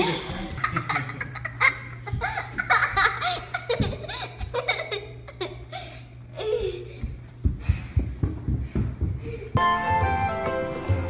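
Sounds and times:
girl laughing and giggling: 0.0s - 7.0s
steady low hum: 0.0s - 11.0s.

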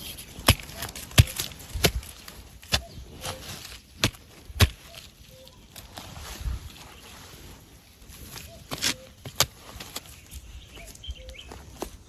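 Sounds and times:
soft scraping in soil: 0.0s - 1.1s, 5.4s - 12.0s.

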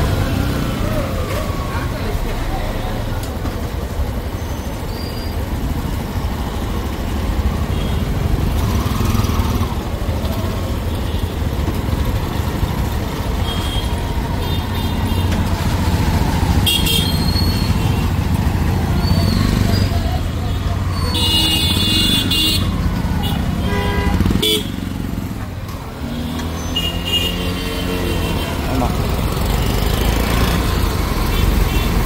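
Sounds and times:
low traffic rumble: 0.0s - 32.0s
motorcycle engine at low speed: 5.5s - 14.4s.

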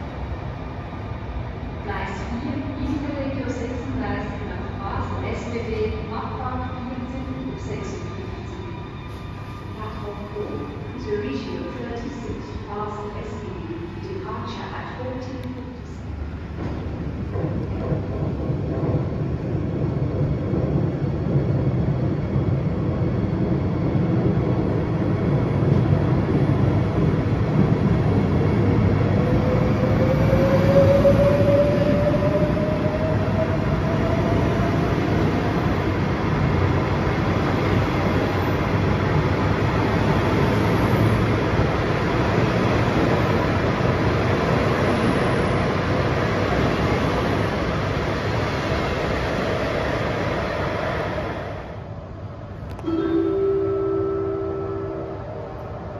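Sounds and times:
train rumbling in station: 0.0s - 55.9s
train whine rising in pitch: 25.0s - 35.0s, 52.7s - 55.9s.

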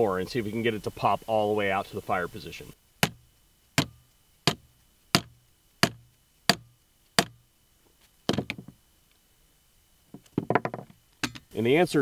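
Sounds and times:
mallet striking metal grip: 3.8s - 7.4s
rattle of light knocks: 8.3s - 8.8s, 10.1s - 11.5s.

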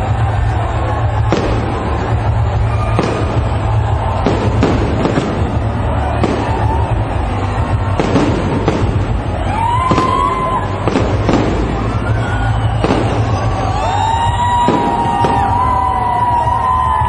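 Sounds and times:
firework shells bursting: 1.2s - 15.9s
rising whistle-like tones: 11.8s - 15.9s.

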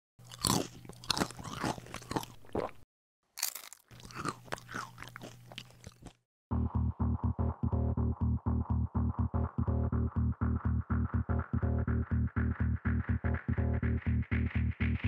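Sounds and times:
crunchy chip chewing: 0.2s - 2.8s, 3.4s - 6.2s.

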